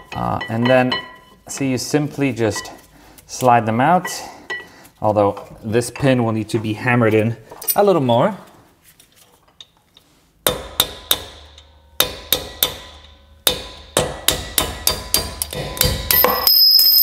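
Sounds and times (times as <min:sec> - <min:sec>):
hammer tapping steel punch: 0:10.5 - 0:17.0.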